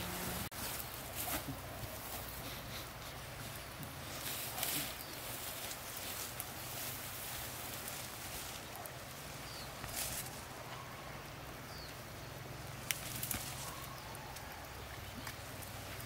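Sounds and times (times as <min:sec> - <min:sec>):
rustling brush: 0:00.0 - 0:10.6
steady outdoor hiss: 0:00.0 - 0:16.0.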